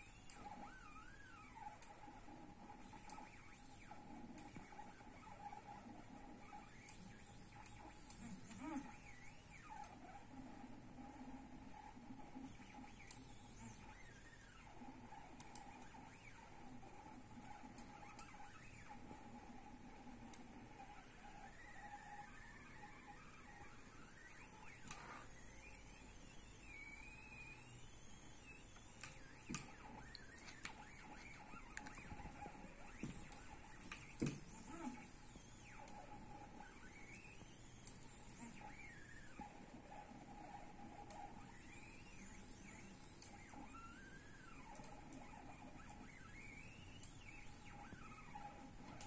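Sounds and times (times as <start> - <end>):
faint stepper motor whine: 0.0 - 49.0
stepper motors whining: 21.2 - 39.5.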